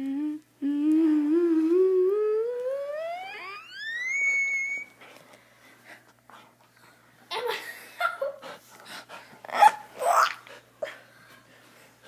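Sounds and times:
squeaky dog toy squealing: 3.3 - 4.9.

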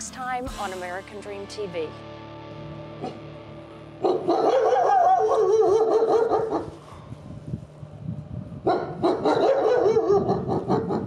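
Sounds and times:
wolves howling: 4.0 - 6.8, 8.7 - 11.0.

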